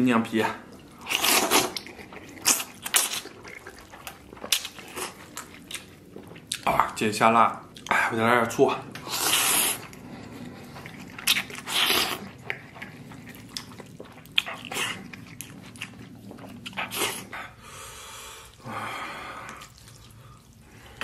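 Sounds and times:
wet chewing clicks: 0:00.6 - 0:08.0, 0:08.9 - 0:17.6, 0:19.4 - 0:21.0
man slurping noodles: 0:09.0 - 0:13.2.

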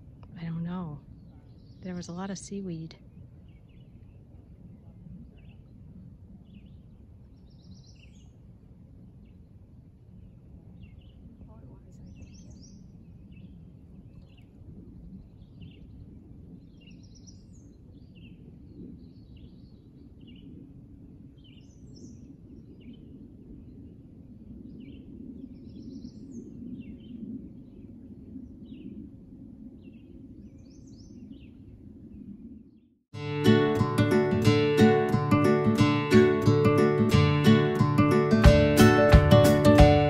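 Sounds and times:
small birds chirping: 0:10.8 - 0:14.5.

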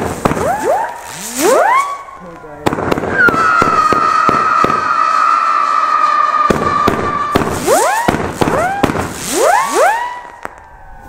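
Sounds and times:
firework whistles rising in pitch: 0:00.0 - 0:02.2, 0:03.0 - 0:11.0
firework pops: 0:06.5 - 0:10.8.

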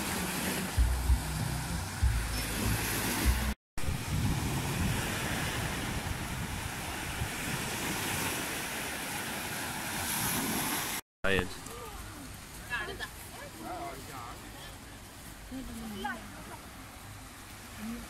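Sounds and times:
waves washing up a beach: 0:00.0 - 0:18.0
wind buffeting the microphone: 0:02.0 - 0:08.6.

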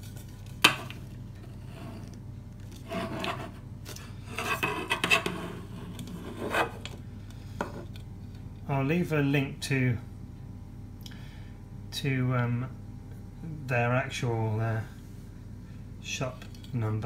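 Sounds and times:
rubbing and scraping of handlebar: 0:02.8 - 0:03.6, 0:04.2 - 0:06.8.

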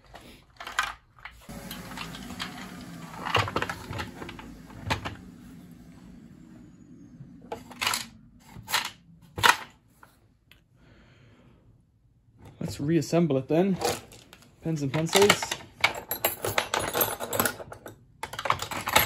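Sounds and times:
small vacuum cleaner humming: 0:01.4 - 0:07.7
bits rattling in vacuum: 0:01.5 - 0:05.3.

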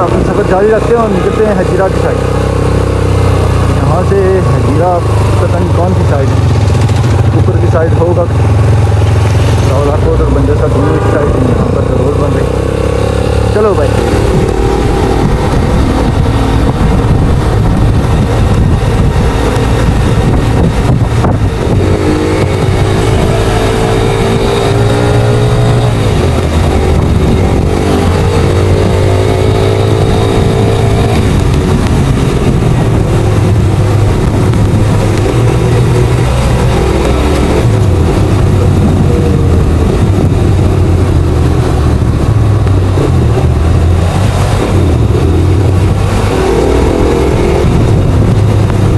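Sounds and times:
motorcycle engine running: 0:00.0 - 0:48.9
wind on microphone: 0:12.5 - 0:48.9.

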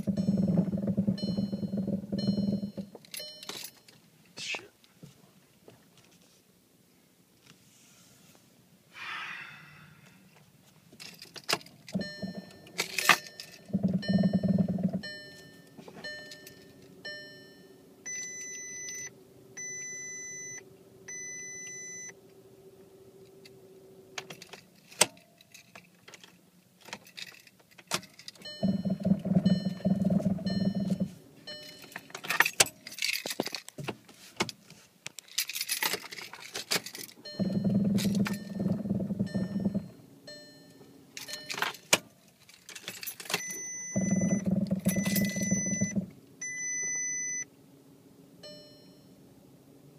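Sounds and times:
steering wheel shaking and buzzing: 0:00.0 - 0:03.2, 0:11.0 - 0:25.1, 0:28.0 - 0:33.4, 0:35.9 - 0:40.6, 0:42.6 - 0:46.6
long beeps: 0:00.0 - 0:03.5, 0:12.0 - 0:22.2, 0:28.4 - 0:32.0, 0:37.2 - 0:41.6, 0:43.4 - 0:47.5
short warning chimes: 0:00.0 - 0:03.8, 0:12.0 - 0:22.2, 0:28.4 - 0:32.1, 0:37.2 - 0:41.7, 0:43.4 - 0:47.5
keys jangling: 0:11.0 - 0:13.8, 0:24.3 - 0:28.4, 0:31.8 - 0:33.7, 0:35.2 - 0:37.2, 0:41.2 - 0:43.4.

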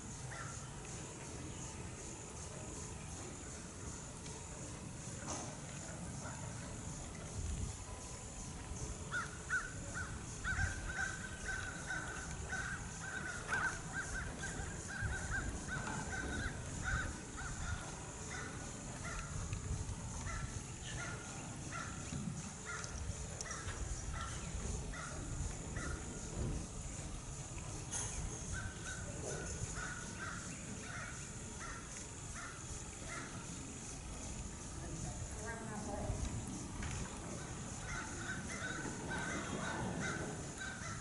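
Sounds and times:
crows cawing: 0:09.1 - 0:19.3, 0:29.7 - 0:33.3, 0:37.7 - 0:41.0.

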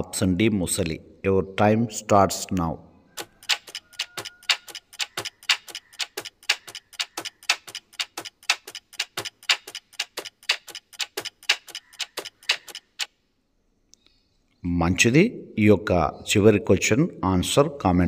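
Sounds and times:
timer clock ticking: 0:03.2 - 0:13.1.

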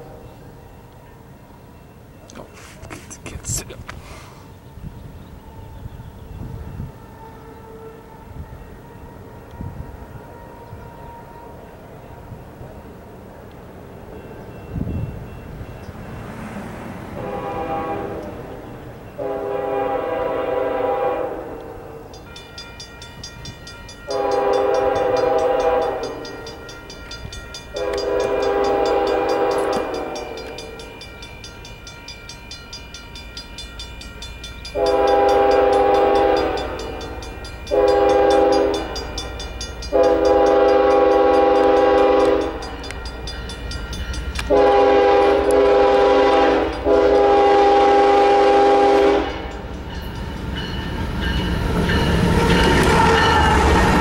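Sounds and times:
low rumble of train: 0:00.0 - 0:54.0
locomotive air horn blasts: 0:06.4 - 0:11.5, 0:17.1 - 0:18.6, 0:19.2 - 0:22.1, 0:24.0 - 0:26.6, 0:27.7 - 0:30.8, 0:34.8 - 0:39.2, 0:39.9 - 0:42.7, 0:44.4 - 0:49.5.

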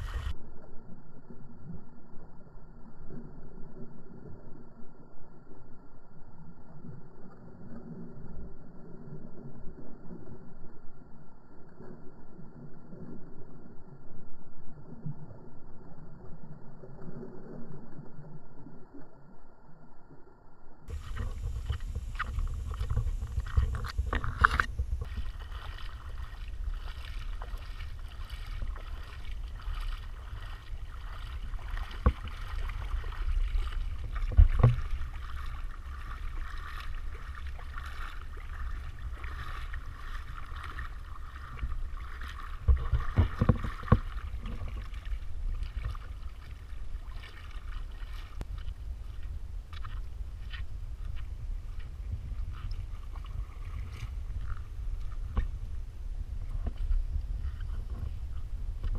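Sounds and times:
shallow water splashing: 0:00.0 - 0:00.3, 0:20.9 - 0:58.9
wind on microphone: 0:00.0 - 0:00.4, 0:20.9 - 0:58.9.

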